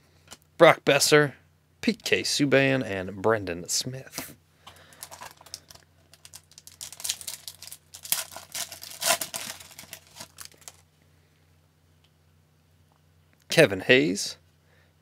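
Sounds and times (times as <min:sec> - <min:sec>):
foil wrapper crinkling and tearing: 0:05.0 - 0:10.8.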